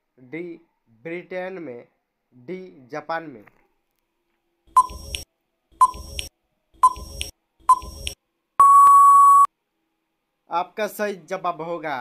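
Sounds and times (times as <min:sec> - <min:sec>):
short electronic beeps: 0:04.7 - 0:05.2, 0:05.8 - 0:09.5
long steady beep: 0:04.8 - 0:05.2, 0:05.8 - 0:09.5.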